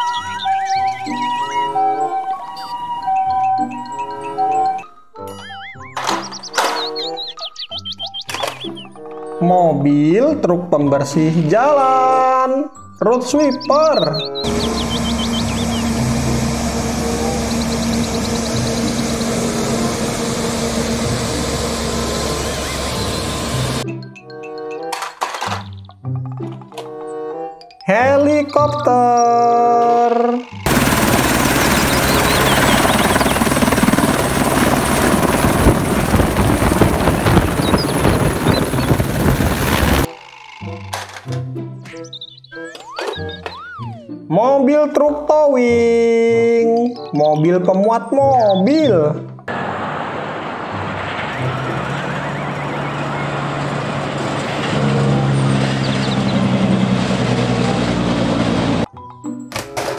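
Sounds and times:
helicopter rotor chop: 0:14.4 - 0:23.8, 0:30.2 - 0:40.8, 0:49.5 - 0:58.9
high turbine whine: 0:14.4 - 0:23.8, 0:30.4 - 0:40.6
road traffic noise: 0:14.4 - 0:23.8, 0:30.7 - 0:40.5, 0:49.5 - 0:58.9
truck engine drone: 0:14.4 - 0:23.8, 0:30.4 - 0:40.9, 0:49.5 - 0:58.9.

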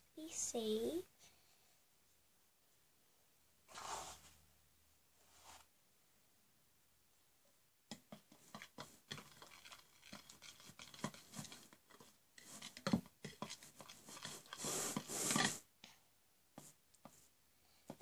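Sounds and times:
rasping stretch of slime: 0:08.1 - 0:15.6
hands scratching and rustling: 0:08.3 - 0:15.6.

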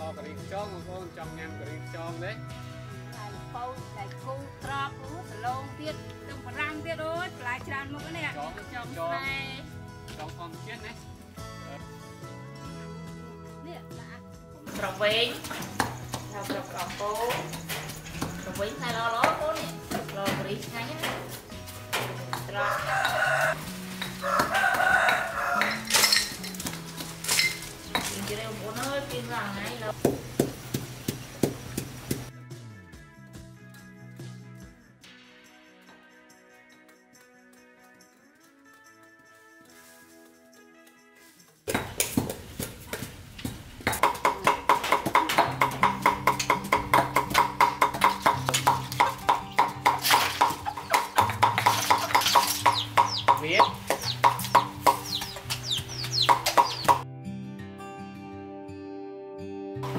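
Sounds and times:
soft background music: 0:00.0 - 0:30.5, 0:31.2 - 0:59.9
cleaver knocking on metal basin: 0:14.7 - 0:32.3, 0:41.7 - 0:57.0
rooster crowing: 0:22.6 - 0:26.0.

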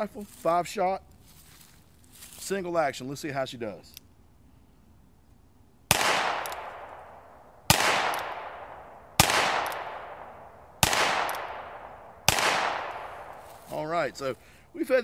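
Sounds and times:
revolver gunshots echoing: 0:05.9 - 0:13.6.

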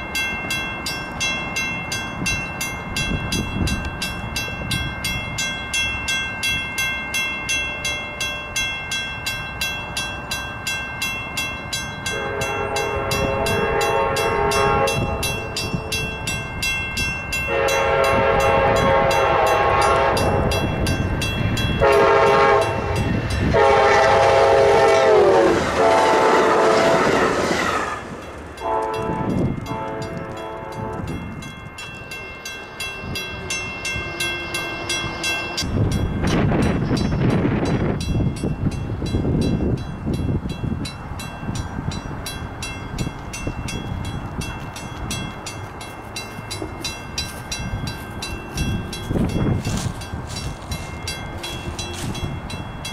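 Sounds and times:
crossing bell ringing: 0:00.0 - 0:52.9
locomotive air horn blowing: 0:12.1 - 0:16.0, 0:17.5 - 0:20.6, 0:21.8 - 0:31.1.

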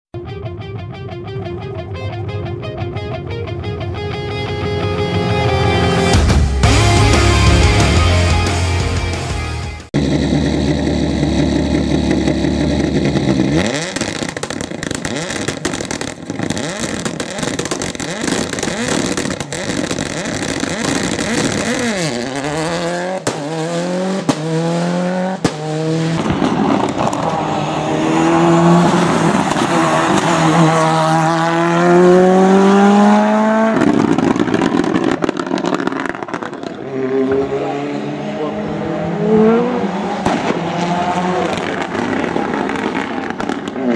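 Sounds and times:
rally cars accelerating past: 0:10.0 - 0:43.9.

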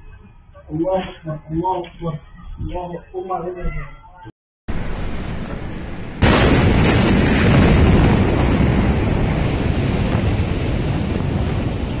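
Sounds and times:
explosion blast wave roar: 0:04.7 - 0:12.0.

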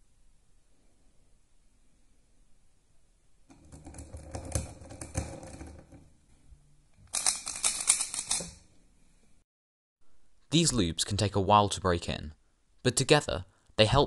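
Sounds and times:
plastic puzzle cube clicking: 0:07.1 - 0:08.5.

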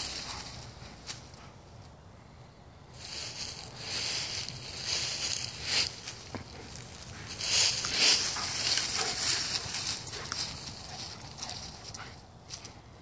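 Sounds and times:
dry leaves rustling and crunching: 0:00.0 - 0:01.3, 0:03.0 - 0:11.9.

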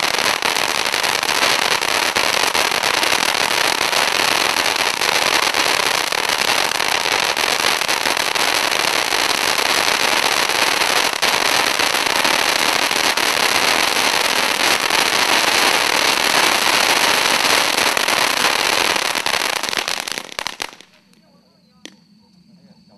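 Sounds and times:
firework fountain hissing: 0:00.0 - 0:21.1
crackling small pops: 0:19.2 - 0:22.0.

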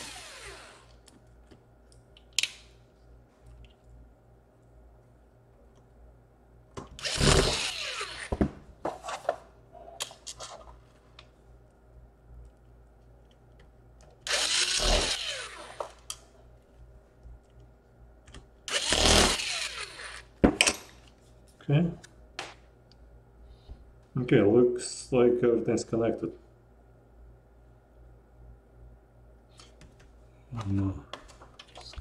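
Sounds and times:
electric screwdriver motor whine: 0:00.0 - 0:00.9, 0:07.0 - 0:08.4, 0:14.3 - 0:16.0, 0:18.7 - 0:20.3.

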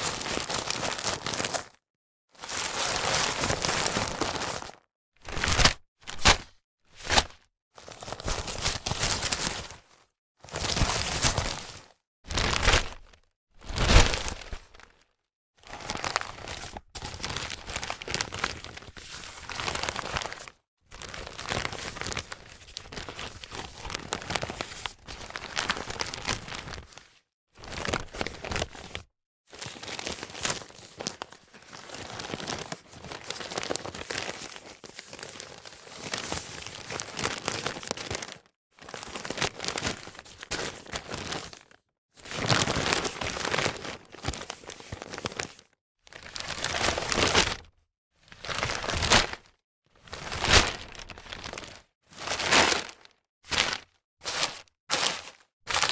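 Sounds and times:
newspaper crumpling: 0:15.6 - 0:29.0, 0:29.6 - 0:41.7, 0:42.3 - 0:47.6, 0:48.4 - 0:49.5, 0:50.2 - 0:55.9.

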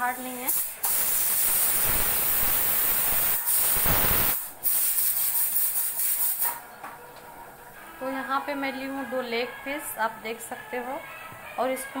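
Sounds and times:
loud steady hiss: 0:00.0 - 0:06.6.

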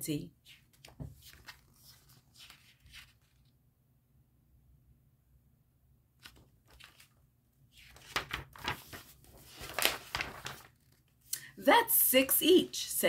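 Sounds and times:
book pages rustling and crinkling: 0:00.4 - 0:03.6, 0:06.2 - 0:11.2.

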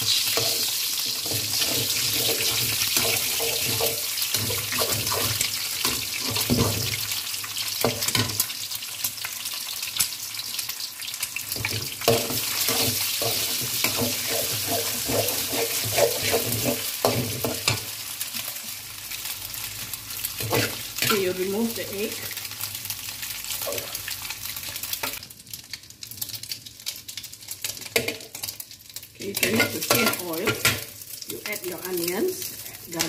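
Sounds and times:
metal spatula scraping pan: 0:00.0 - 0:06.9, 0:12.1 - 0:17.8, 0:20.4 - 0:21.2
eggs sizzling in hot oil: 0:00.0 - 0:33.0.

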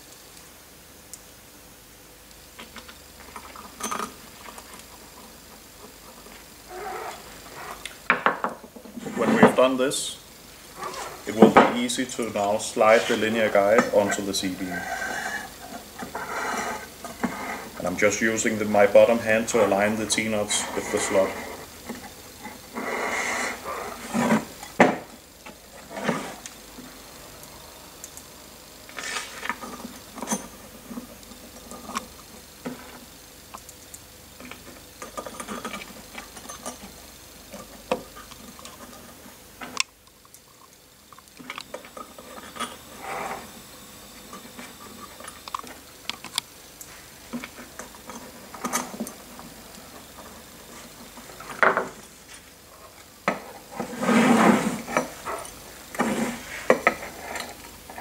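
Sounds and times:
metal rail scraping: 0:12.7 - 0:17.7, 0:22.8 - 0:24.5, 0:53.7 - 0:57.6.

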